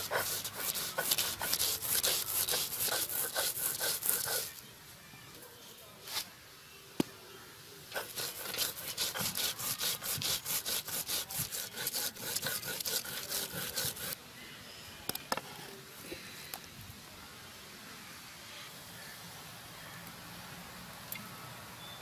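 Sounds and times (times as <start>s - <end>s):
stone roller grinding seeds: 0.0s - 4.6s, 7.9s - 14.2s.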